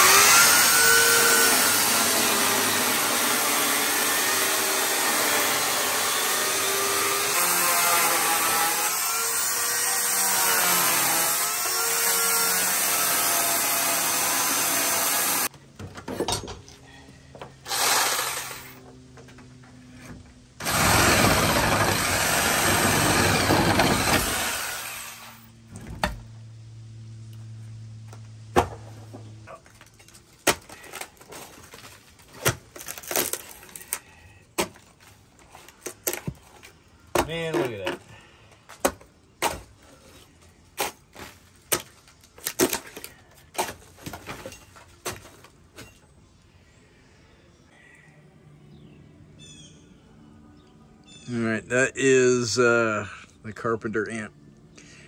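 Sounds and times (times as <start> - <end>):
electric chainsaw cutting wood: 0.0 - 15.5, 17.6 - 19.0, 20.6 - 25.5.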